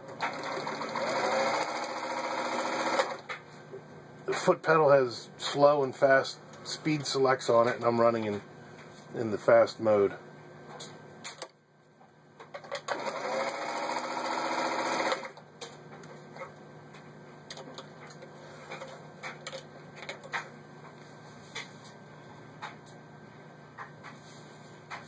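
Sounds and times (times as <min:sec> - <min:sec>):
sewing machine running: 0:00.1 - 0:03.3, 0:12.9 - 0:15.4.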